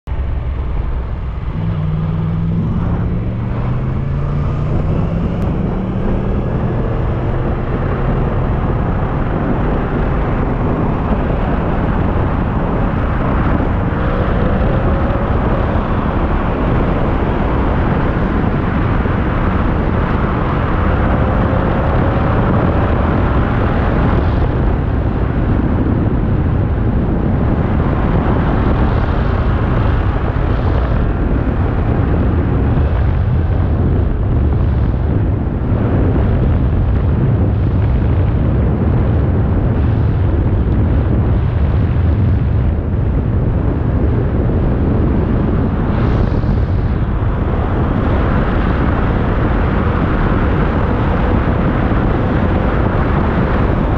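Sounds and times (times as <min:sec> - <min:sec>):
motorcycle engine accelerating: 0:00.0 - 0:53.9
wind noise on microphone: 0:00.0 - 0:53.9.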